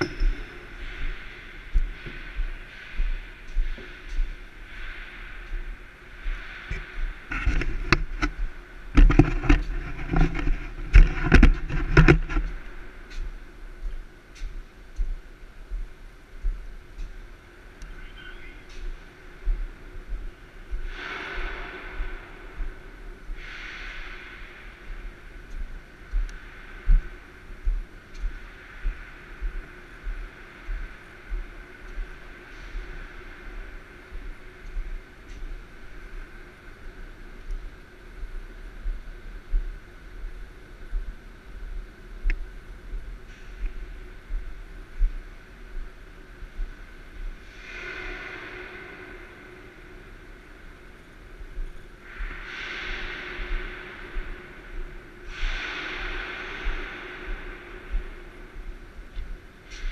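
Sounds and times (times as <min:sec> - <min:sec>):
steady hiss: 0:00.0 - 0:59.9
steady hum: 0:00.0 - 0:59.9
dull low thuds: 0:25.0 - 0:32.2.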